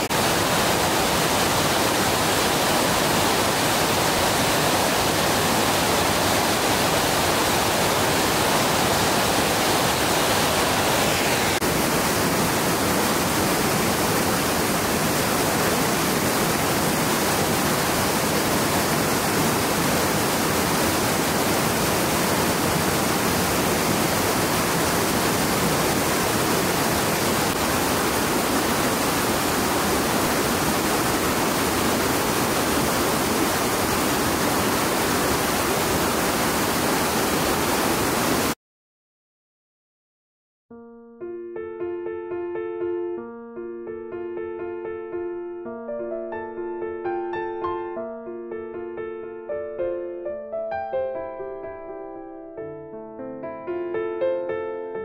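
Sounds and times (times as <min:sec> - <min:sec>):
waterfall roaring: 0:00.0 - 0:38.6.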